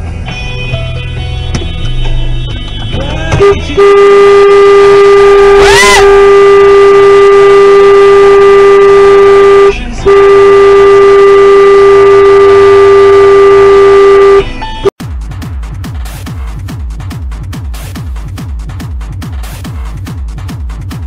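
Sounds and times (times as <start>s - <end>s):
car horn: 1.8s - 14.9s.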